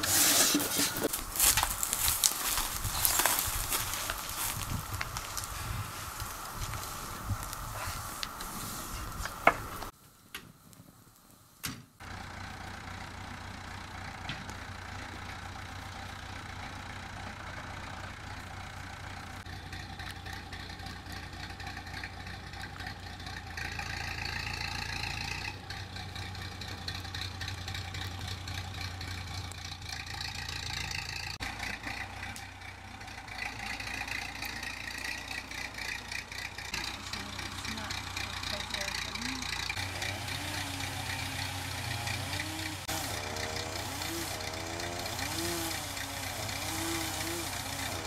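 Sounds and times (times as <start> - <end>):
engine running: 0.0 - 10.0, 12.0 - 48.0.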